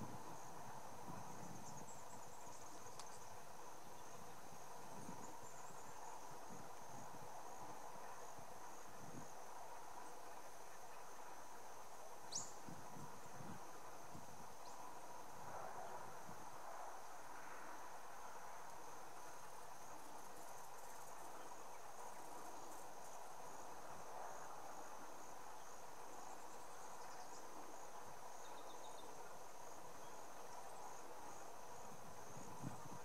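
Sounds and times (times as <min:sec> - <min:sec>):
insects trilling: 0:00.0 - 0:33.0
soft background hiss: 0:00.0 - 0:33.0.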